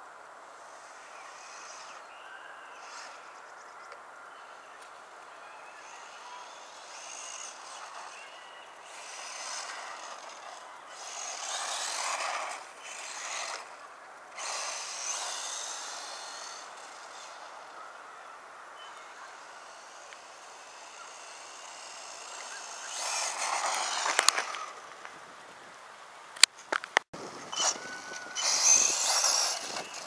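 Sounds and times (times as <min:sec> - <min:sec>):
electric motor whining: 0:04.4 - 0:25.0, 0:27.2 - 0:30.0
tyres running over gravel: 0:04.6 - 0:18.4, 0:19.0 - 0:30.0.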